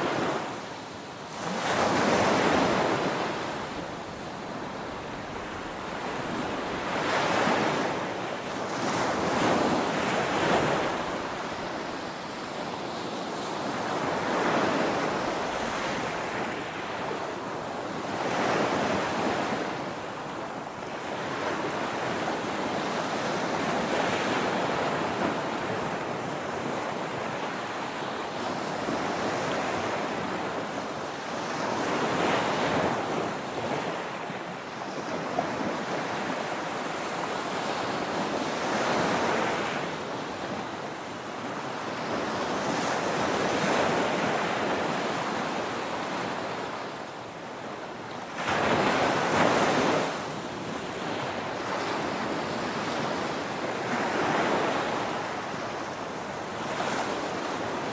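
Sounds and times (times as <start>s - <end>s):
ocean waves breaking on beach: 0.0s - 57.9s.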